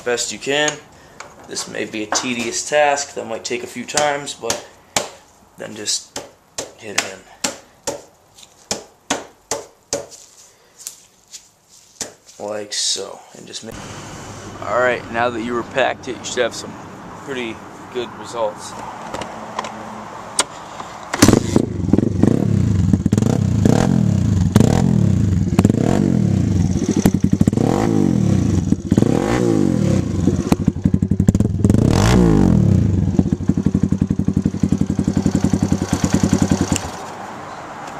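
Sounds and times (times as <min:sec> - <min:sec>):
motorbike engine revving and idling: 0:21.2 - 0:37.1.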